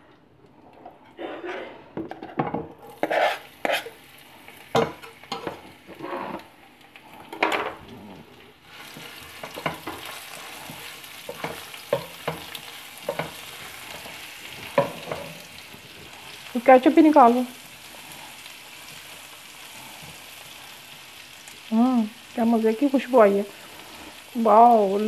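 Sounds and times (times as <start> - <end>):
spatula scraping a pan: 1.1 - 4.1, 4.8 - 6.5, 8.7 - 15.6
garlic sizzling in oil: 2.8 - 25.0.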